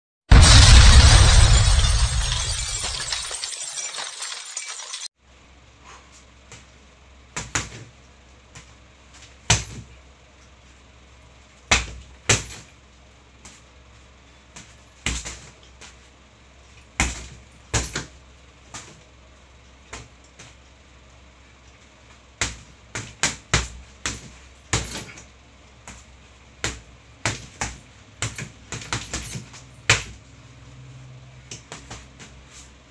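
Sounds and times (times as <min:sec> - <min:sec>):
boxing gloves hitting punching bag: 0:09.5 - 0:09.9, 0:11.7 - 0:12.7, 0:14.6 - 0:15.5, 0:17.0 - 0:18.1, 0:22.4 - 0:30.2.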